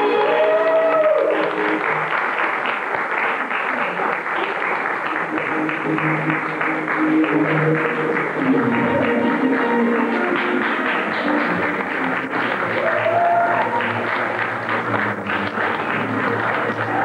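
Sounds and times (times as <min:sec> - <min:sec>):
music playing: 0:00.0 - 0:02.4, 0:05.0 - 0:17.0
audience applauding: 0:00.0 - 0:17.0.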